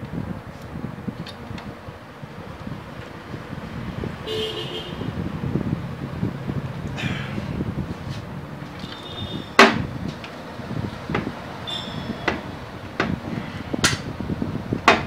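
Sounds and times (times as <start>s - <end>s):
bolts clicking and knocking: 8.6s - 10.4s, 11.0s - 13.2s, 13.8s - 14.1s, 14.8s - 15.0s.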